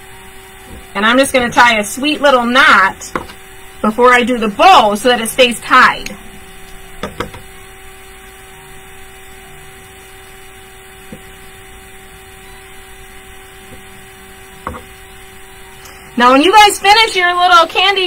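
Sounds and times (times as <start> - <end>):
electrical hum: 0.0 - 18.0
knocks and clicks of glass bottles: 14.6 - 14.9.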